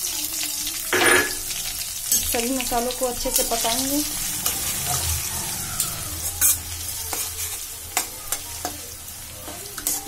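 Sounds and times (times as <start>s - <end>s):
spices sizzling in hot oil: 0.0s - 10.0s
metal spatula scraping a pan: 3.2s - 5.4s, 6.2s - 10.0s.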